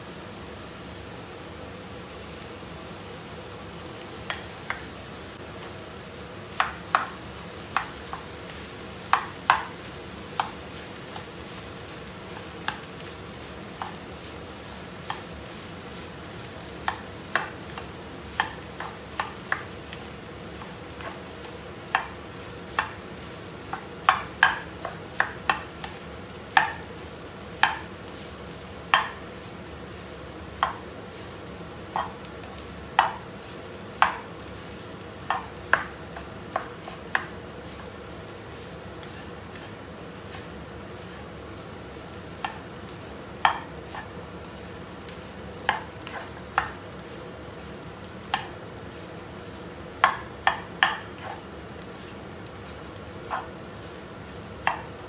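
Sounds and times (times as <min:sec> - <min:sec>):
pan sizzling: 0:00.0 - 0:55.0
spatula scraping a wok: 0:33.0 - 0:41.4, 0:42.4 - 0:47.2, 0:48.3 - 0:54.9.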